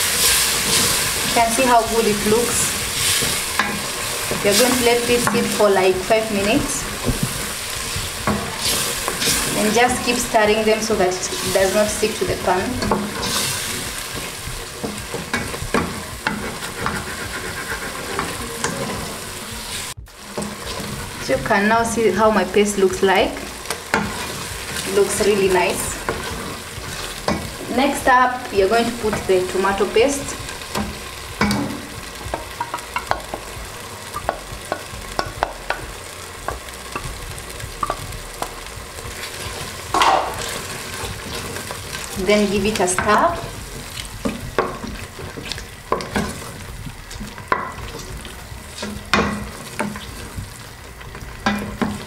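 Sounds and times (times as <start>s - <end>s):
wooden spoon scraping metal pot: 0.0s - 21.7s
food sizzling: 0.0s - 52.0s
wooden spoon scraping pot: 11.3s - 21.4s.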